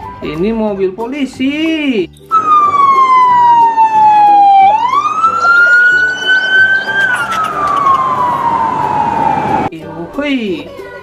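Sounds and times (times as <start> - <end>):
police car siren wailing: 2.3 - 9.7.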